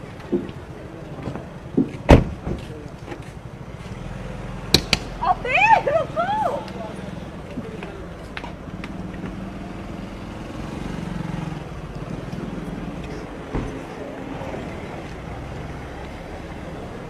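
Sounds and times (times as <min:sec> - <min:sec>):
indistinct crowd voices: 0:04.8 - 0:17.0.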